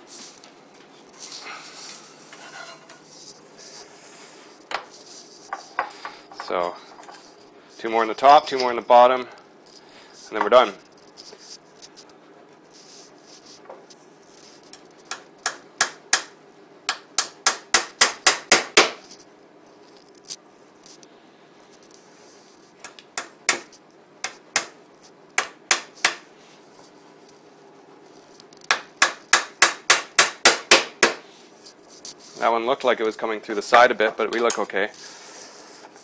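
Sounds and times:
hammer tapping nails into wood: 0:15.1 - 0:16.3, 0:16.9 - 0:19.0, 0:25.4 - 0:26.2, 0:28.6 - 0:31.2.

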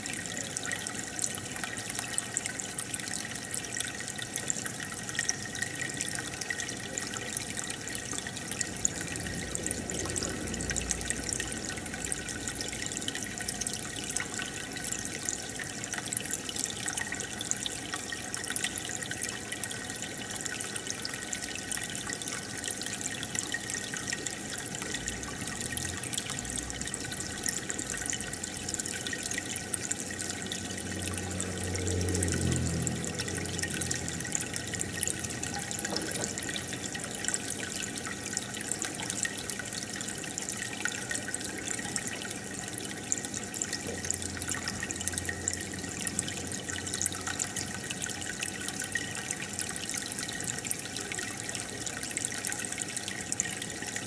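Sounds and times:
aquarium water bubbling: 0:00.0 - 0:54.0.

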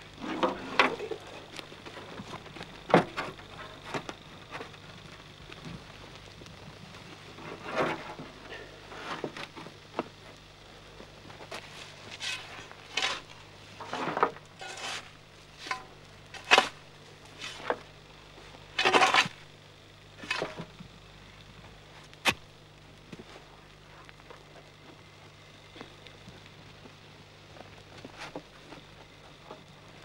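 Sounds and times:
scraping and crunching strokes: 0:11.4 - 0:19.5, 0:20.2 - 0:20.8.

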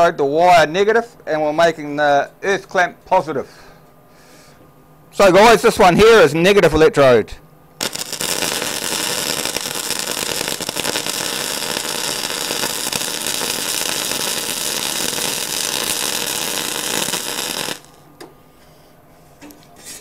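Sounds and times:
welding arc crackling: 0:07.8 - 0:18.1.

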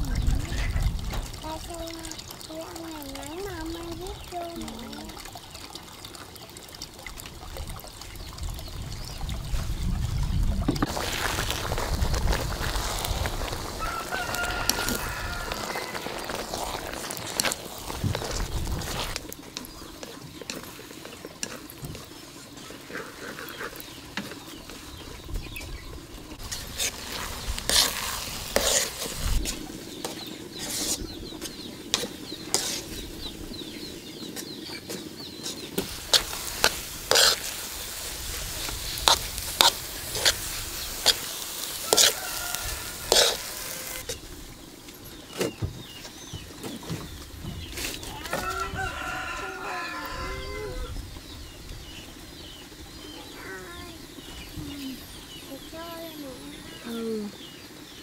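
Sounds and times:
low sizzle: 0:00.0 - 0:58.0
utensil stirring in a pot: 0:10.8 - 0:44.3.

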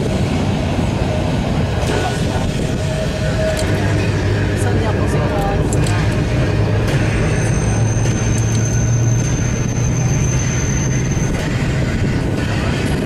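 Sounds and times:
tram motors and wheels rumbling: 0:00.0 - 0:13.0
thin high whine: 0:06.1 - 0:13.0.

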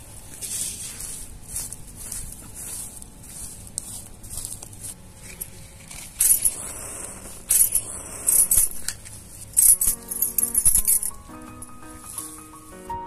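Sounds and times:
fingers scraping gravelly soil: 0:00.0 - 0:13.0
match burning: 0:02.9 - 0:11.1.

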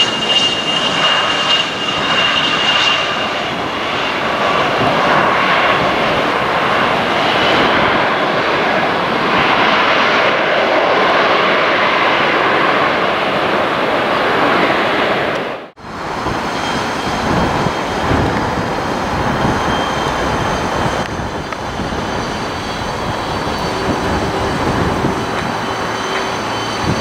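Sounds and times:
jet engine rumble: 0:00.0 - 0:27.0
loud jet engine rush: 0:00.0 - 0:27.0
thin high whine: 0:15.9 - 0:27.0.

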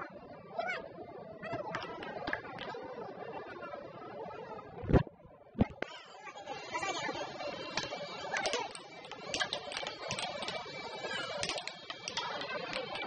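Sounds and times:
air hockey puck clacking: 0:07.7 - 0:13.0.

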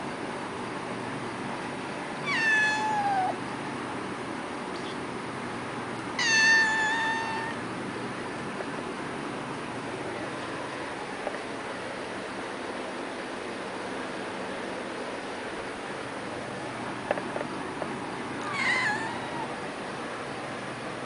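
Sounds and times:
kitten meowing: 0:02.2 - 0:03.4, 0:06.2 - 0:07.6, 0:18.4 - 0:19.6.

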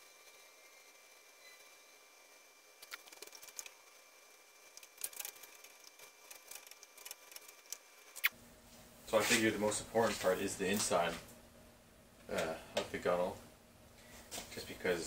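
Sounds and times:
footsteps: 0:08.7 - 0:11.3.

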